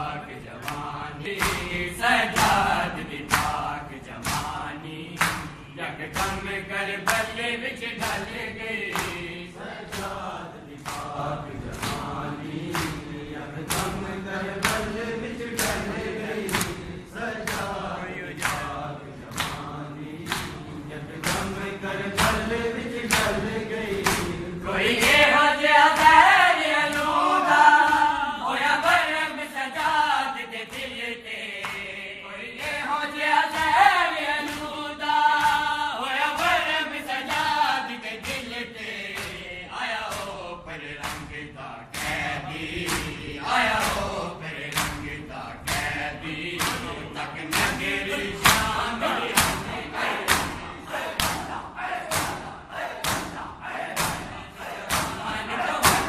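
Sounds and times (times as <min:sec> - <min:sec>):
crowd of men chanting: 0:00.0 - 0:56.0
hands slapping chests: 0:00.6 - 0:02.6, 0:03.3 - 0:07.3, 0:08.0 - 0:09.3, 0:09.9 - 0:25.3, 0:34.4 - 0:34.7, 0:35.4 - 0:35.7, 0:38.2 - 0:39.5, 0:40.1 - 0:40.4, 0:41.0 - 0:56.0.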